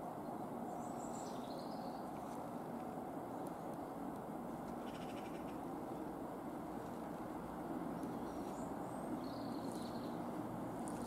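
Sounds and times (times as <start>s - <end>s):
train engine drone and rail rumble: 0.0s - 11.0s
faint bird chirps: 4.8s - 5.7s, 8.0s - 10.2s.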